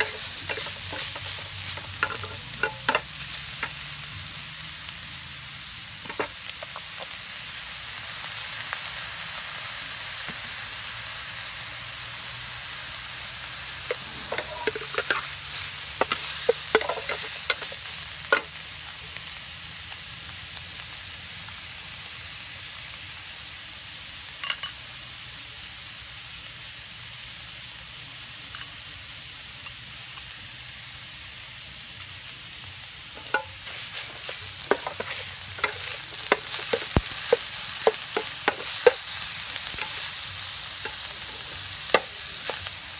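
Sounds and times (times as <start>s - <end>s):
metal spatula scraping pan: 0.0s - 3.7s, 13.7s - 17.8s, 33.2s - 40.2s
spice paste sizzling in pan: 0.0s - 42.9s.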